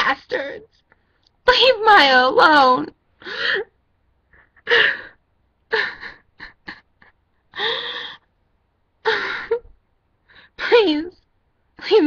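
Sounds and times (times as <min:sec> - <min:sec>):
person sobbing: 0:04.4 - 0:08.2.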